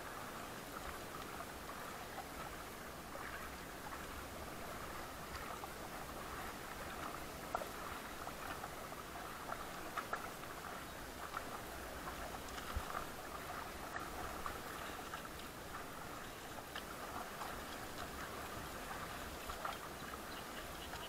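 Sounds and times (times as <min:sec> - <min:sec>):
paddles splashing in water: 0:00.0 - 0:21.0.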